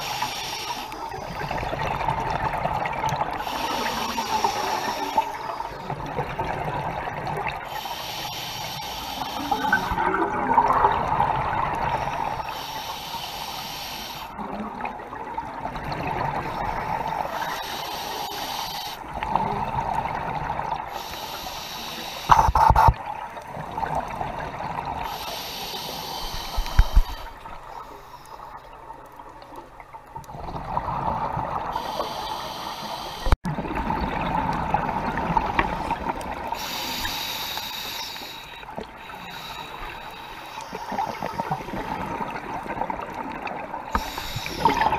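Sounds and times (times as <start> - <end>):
diver breathing through regulator: 3.4 - 5.6, 7.6 - 10.1, 12.0 - 14.4, 17.2 - 19.1, 20.9 - 22.8, 25.0 - 28.5, 31.7 - 33.4, 36.6 - 42.3, 43.9 - 44.9
exhaled bubbles rushing: 9.7 - 12.4, 33.4 - 36.5, 41.6 - 44.9.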